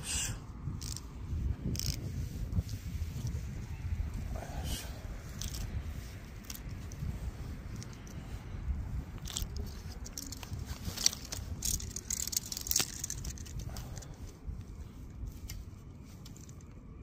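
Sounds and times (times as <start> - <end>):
steady low rumble: 0.0 - 17.0
handling clicks and rustles: 0.6 - 17.0.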